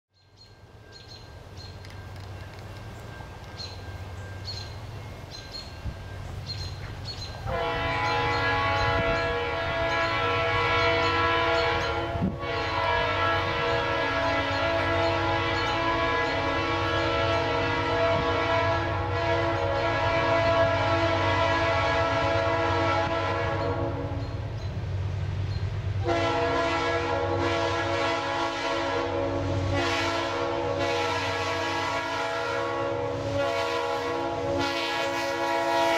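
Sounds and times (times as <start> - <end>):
diesel freight train rumbling: 0.2 - 35.9
locomotive horn chord: 7.4 - 24.4, 26.0 - 35.9.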